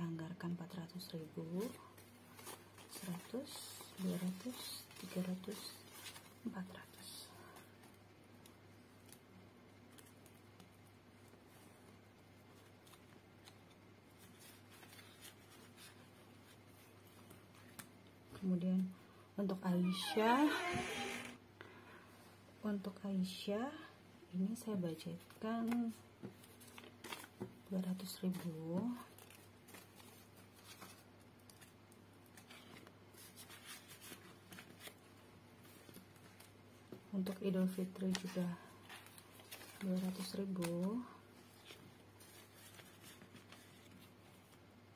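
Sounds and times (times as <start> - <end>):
banknotes rustling and clicking: 25.6 - 44.6.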